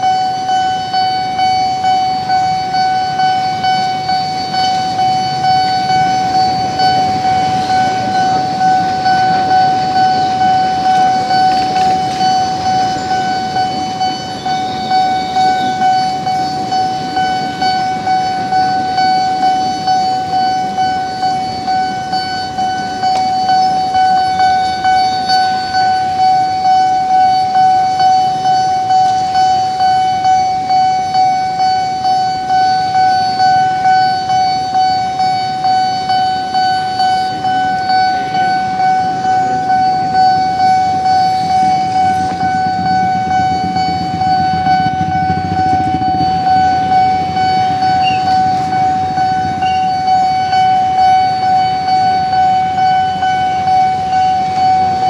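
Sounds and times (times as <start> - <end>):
level-crossing warning bell ringing: 0.0 - 55.0.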